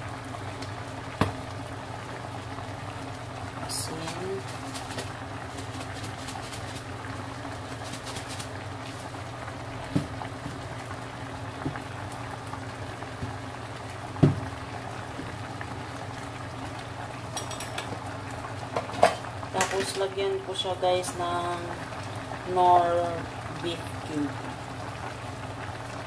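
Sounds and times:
broth bubbling in pot: 0.0 - 26.0
dull knocks: 14.2 - 14.5.

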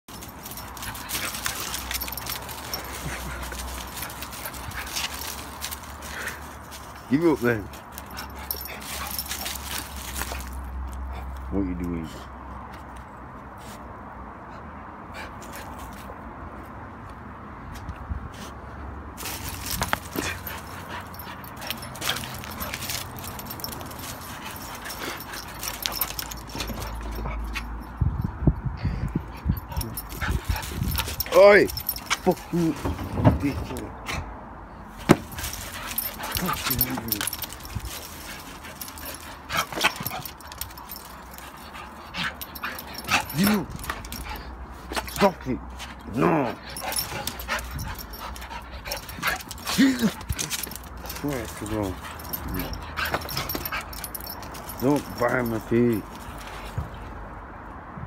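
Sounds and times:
clicks and rustles: 0.1 - 7.1, 19.2 - 27.9, 35.0 - 57.1.

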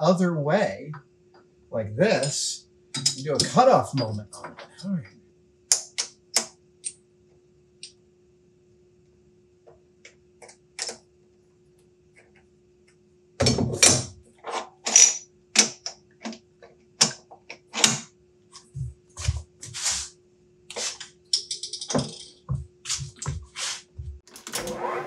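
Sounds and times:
faint steady hum: 0.0 - 25.0
metal tool holders clanking: 3.0 - 4.9, 21.4 - 22.4.

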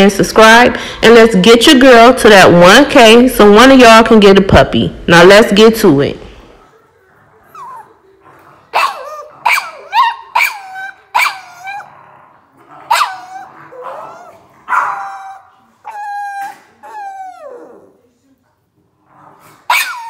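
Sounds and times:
dog barking: 8.7 - 11.9, 12.8 - 15.4, 19.7 - 20.0.

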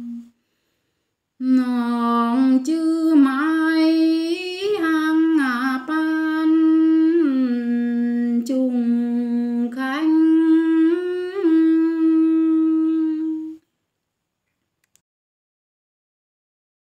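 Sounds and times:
woman humming a slow melody: 0.0 - 0.3, 1.4 - 13.6.

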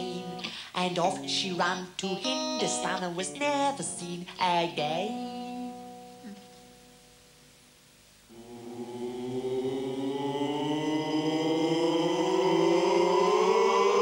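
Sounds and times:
voices chanting ooh: 8.3 - 14.0.

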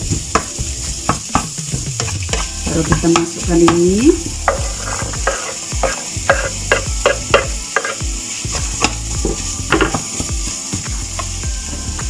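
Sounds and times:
meat sizzling in a frying pan: 0.0 - 12.0
spatula scraping a pan: 2.0 - 11.4.

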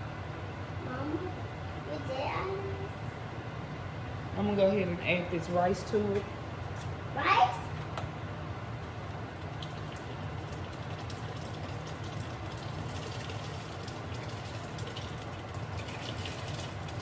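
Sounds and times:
rice pouring into boiling water: 9.4 - 17.0.

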